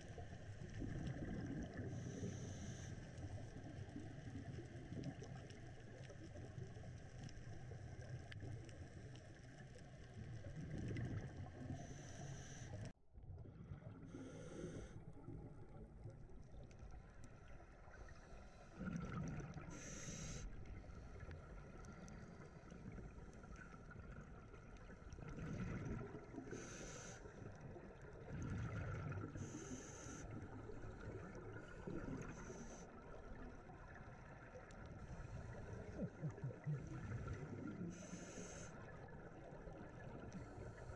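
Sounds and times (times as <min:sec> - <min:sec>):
regulator bubbles gurgling: 0:00.0 - 0:12.1, 0:13.2 - 0:40.9
underwater low rumble: 0:00.0 - 0:40.9.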